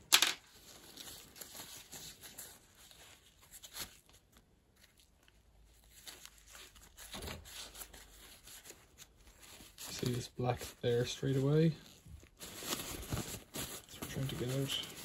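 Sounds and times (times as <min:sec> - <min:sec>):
paper tissue rustling and scraping: 0:00.5 - 0:15.0.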